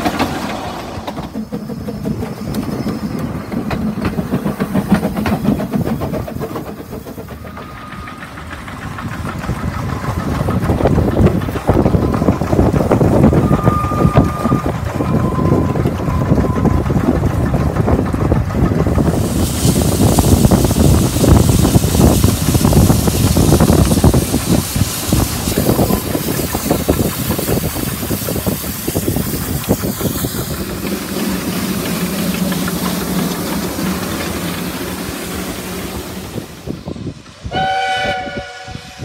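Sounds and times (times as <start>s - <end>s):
steam locomotive exhaust beats: 0.0s - 39.0s
train running gear: 0.0s - 39.0s.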